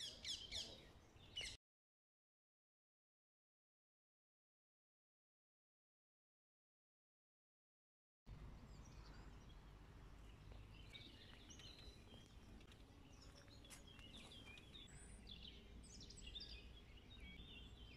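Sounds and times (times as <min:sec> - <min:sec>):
small birds chirping: 0:00.0 - 0:01.6, 0:08.3 - 0:17.9.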